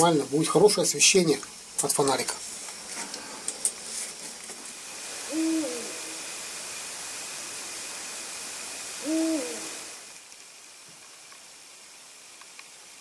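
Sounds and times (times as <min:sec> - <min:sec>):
steady hiss: 0:00.0 - 0:13.0
owl hooting: 0:05.1 - 0:06.7, 0:08.7 - 0:10.0.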